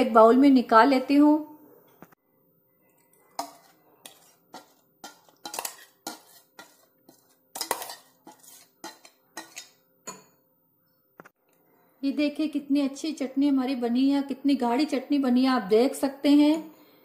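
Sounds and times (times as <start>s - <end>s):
metal spoon scraping a steel jar: 3.3s - 10.3s.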